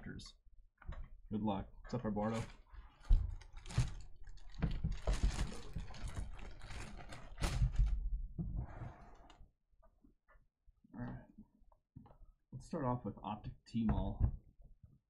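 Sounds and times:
objects rustling and clicking: 2.2s - 8.0s.

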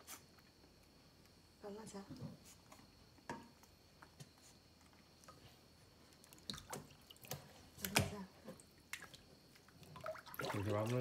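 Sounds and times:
water splashing in a basin: 6.2s - 11.0s.

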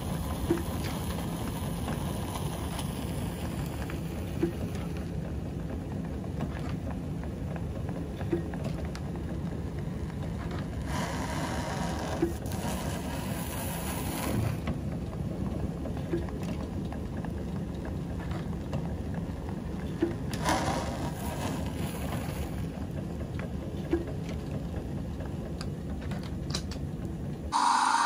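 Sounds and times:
caster scraping: 27.6s - 28.0s.

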